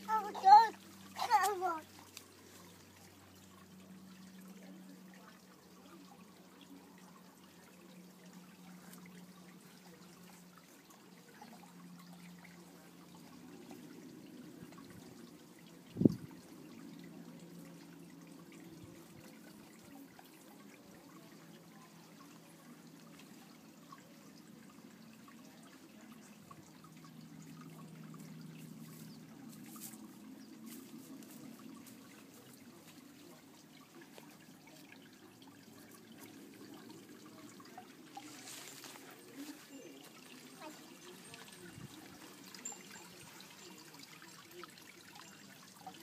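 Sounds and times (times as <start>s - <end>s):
water trickling: 0.0s - 46.0s.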